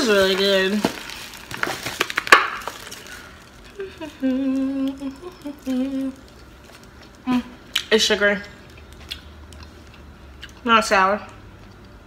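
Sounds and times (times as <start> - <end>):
woman humming: 3.7 - 6.3.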